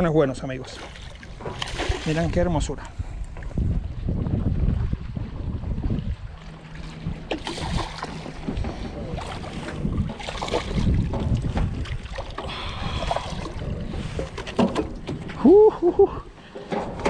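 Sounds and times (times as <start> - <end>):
water lapping: 0.0 - 17.0
fish splashing: 0.7 - 2.2, 6.8 - 8.4, 9.2 - 15.1
wind rumbling on microphone: 0.9 - 17.0.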